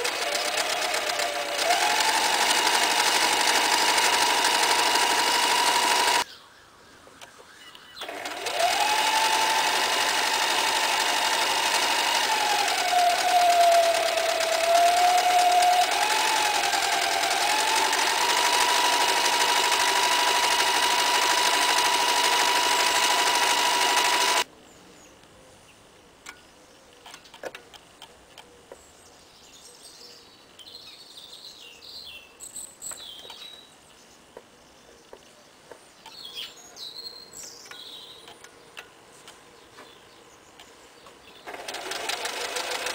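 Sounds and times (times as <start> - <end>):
sewing machine motor whine: 0.0 - 6.2, 8.0 - 24.4, 41.5 - 42.9.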